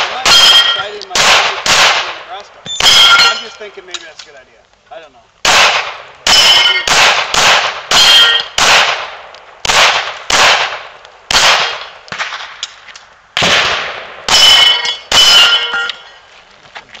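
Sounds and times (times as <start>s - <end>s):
steel target clanging: 0.2s - 1.0s, 2.7s - 4.1s, 6.3s - 6.9s, 7.9s - 8.6s, 14.3s - 16.2s.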